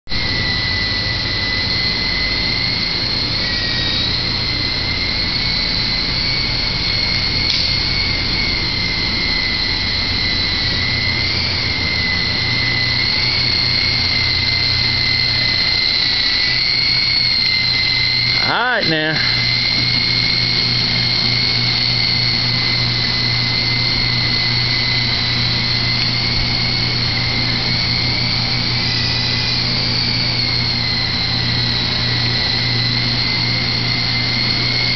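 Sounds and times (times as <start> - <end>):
low hum: 0.1 - 34.8
rc helicopter rotor whine: 0.1 - 34.9.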